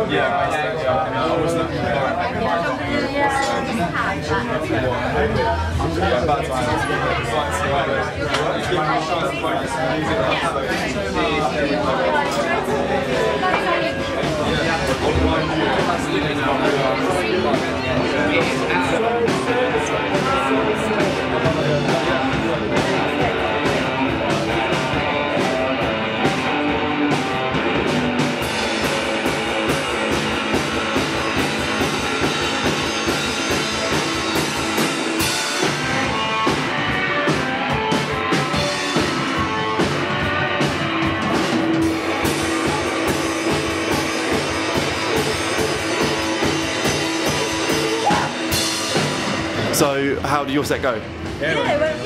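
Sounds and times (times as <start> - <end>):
drum kit: 10.0 - 52.0
electric guitar: 11.7 - 49.8.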